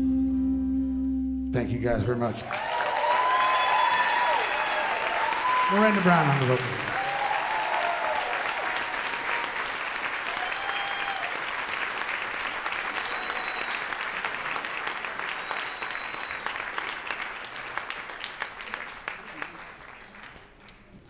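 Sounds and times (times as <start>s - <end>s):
audience applauding: 2.3s - 21.0s.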